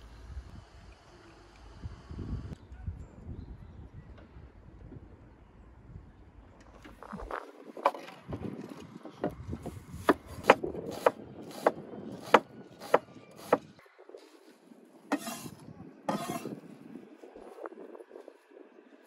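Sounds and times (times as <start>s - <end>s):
knife chopping on wooden board: 10.0s - 13.6s, 15.1s - 15.5s, 16.1s - 16.4s.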